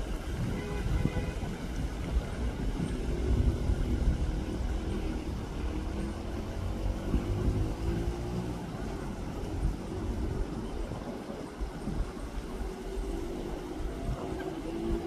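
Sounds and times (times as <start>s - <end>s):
vehicle engine accelerating: 2.0s - 15.0s.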